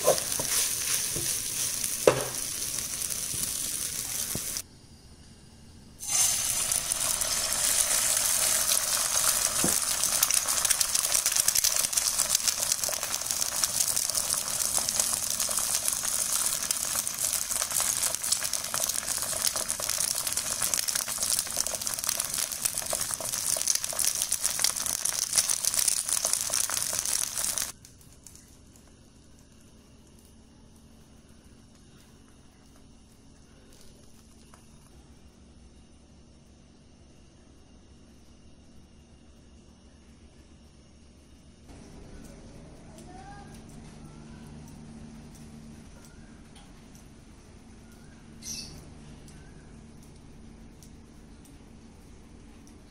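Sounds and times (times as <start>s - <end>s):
egg sizzling in hot oil: 0.0s - 4.6s, 6.0s - 27.8s.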